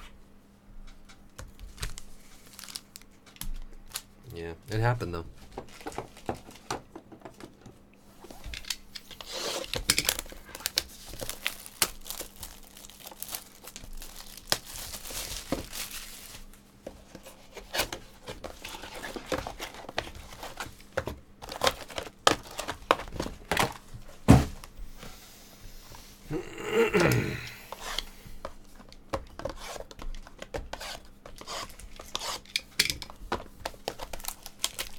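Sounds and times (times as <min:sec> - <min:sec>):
plastic shrink wrap tearing: 0:01.7 - 0:03.1, 0:09.2 - 0:16.6, 0:33.9 - 0:34.9
cardboard knocks: 0:24.3 - 0:24.6.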